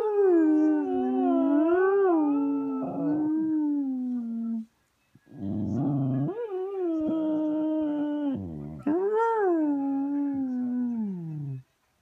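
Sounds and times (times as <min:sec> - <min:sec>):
dog howling: 0:00.0 - 0:04.6.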